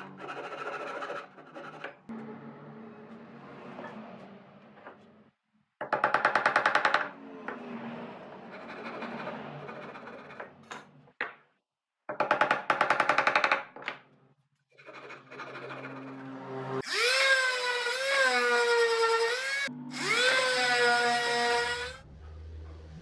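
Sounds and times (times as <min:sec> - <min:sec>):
power tool humming: 0:16.5 - 0:22.0.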